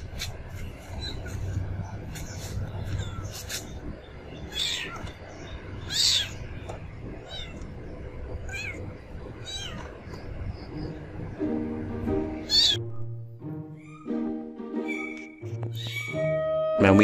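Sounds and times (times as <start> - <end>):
kitten meowing: 5.8 - 6.4, 8.5 - 9.9, 12.4 - 12.8, 14.9 - 16.4.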